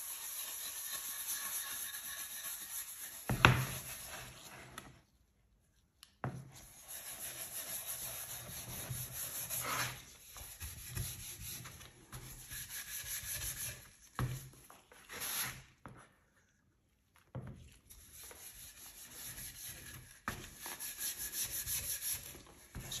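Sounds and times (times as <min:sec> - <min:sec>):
scratchy rubbing on wood: 0:00.0 - 0:04.7, 0:06.6 - 0:14.3.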